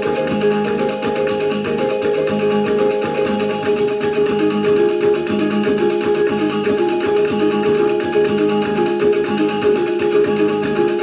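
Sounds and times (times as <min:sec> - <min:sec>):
small tuned gongs melody: 0:00.0 - 0:11.0.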